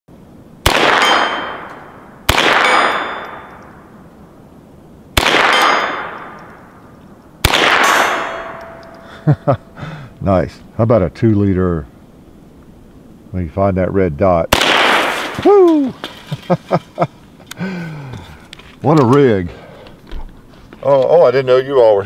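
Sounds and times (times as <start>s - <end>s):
gunshot echo: 0.6s - 3.8s, 5.2s - 6.7s, 7.4s - 9.1s, 14.5s - 15.5s
pistol shots: 0.6s - 3.8s, 5.2s - 6.7s, 7.4s - 9.0s, 14.5s - 15.4s
steel target ringing: 0.7s - 3.8s, 5.4s - 6.7s, 7.6s - 9.3s.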